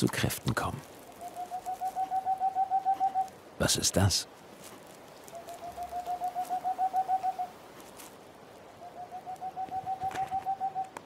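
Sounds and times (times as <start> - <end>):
owl rapid soft hoots: 1.1 - 3.3, 5.2 - 7.6, 8.8 - 11.0.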